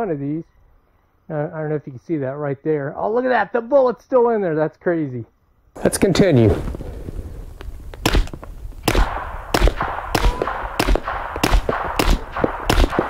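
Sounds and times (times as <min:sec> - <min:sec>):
suppressed pistol shots: 0:08.0 - 0:13.0.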